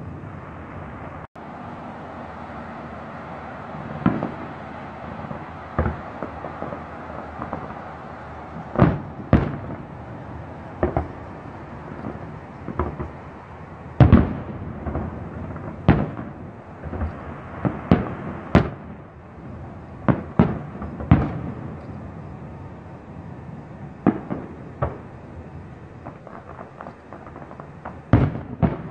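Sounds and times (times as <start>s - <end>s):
firework shells bursting: 3.6s - 19.2s, 23.9s - 28.9s.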